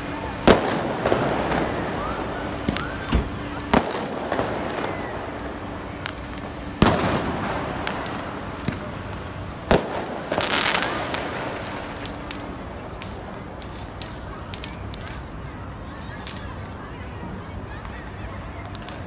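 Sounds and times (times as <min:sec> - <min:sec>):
fireworks bangs: 0:00.0 - 0:15.2
firecrackers crackling: 0:00.0 - 0:19.0
small firecracker pops: 0:00.4 - 0:09.0, 0:09.7 - 0:15.2, 0:16.2 - 0:16.7, 0:18.6 - 0:19.0.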